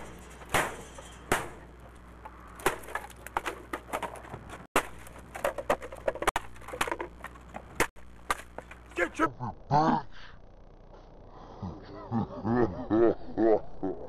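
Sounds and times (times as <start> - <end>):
wooden guitar smashing: 0.0 - 1.9, 2.5 - 8.9
broken pieces knocked and trodden on: 0.0 - 9.0.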